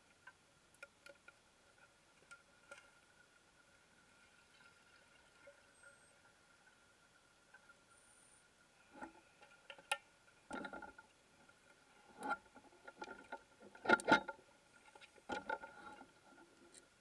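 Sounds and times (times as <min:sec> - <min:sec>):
faint steady high tone: 0:05.4 - 0:06.8.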